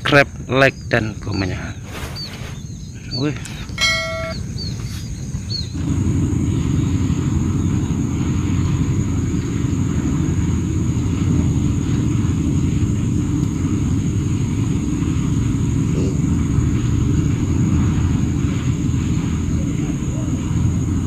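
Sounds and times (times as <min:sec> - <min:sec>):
faint high-pitched whine: 0:00.0 - 0:05.5
wind rumbling on microphone: 0:00.0 - 0:21.0.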